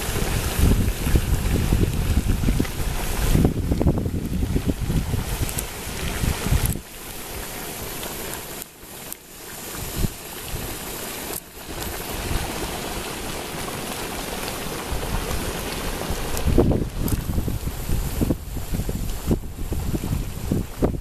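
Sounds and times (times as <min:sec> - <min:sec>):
wind buffeting microphone: 0:00.0 - 0:06.9, 0:09.8 - 0:10.8, 0:14.8 - 0:21.0
mud pots bubbling: 0:00.0 - 0:21.0.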